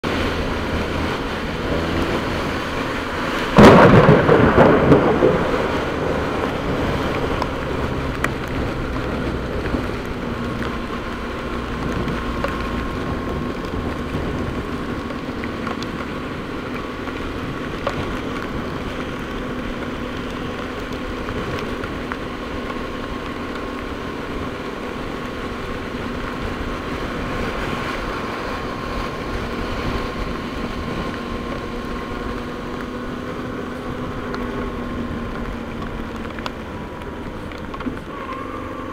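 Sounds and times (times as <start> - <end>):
motorcycle engine humming: 0.0 - 38.9
steady rain: 0.0 - 38.9
wind noise: 0.0 - 38.9
thunderclap: 3.4 - 10.7.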